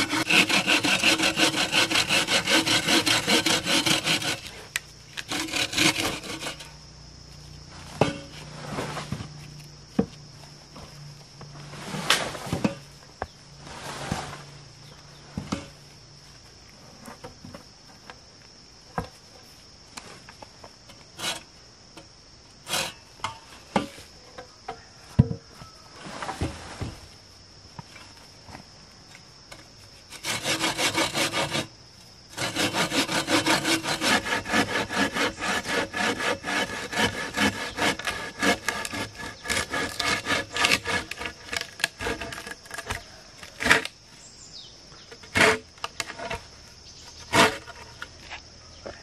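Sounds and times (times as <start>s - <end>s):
hand saw cutting wood: 0.0s - 6.8s, 21.2s - 21.5s, 22.7s - 23.0s, 30.1s - 31.7s, 32.3s - 43.9s, 45.2s - 46.4s, 47.3s - 47.9s
insects droning: 0.0s - 49.0s.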